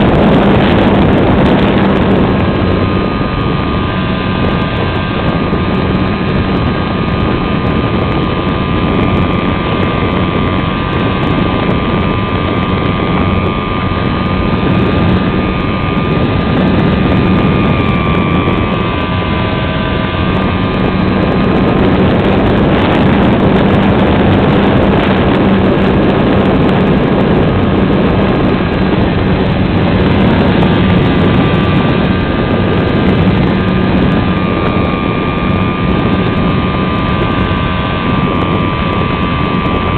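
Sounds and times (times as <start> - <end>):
steady whine: 0.0 - 39.9
wind rushing over camera: 0.0 - 39.9.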